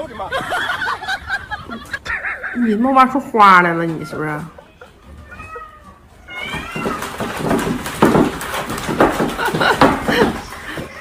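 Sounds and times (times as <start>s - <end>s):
skateboard clattering on wooden floor: 6.4s - 11.0s.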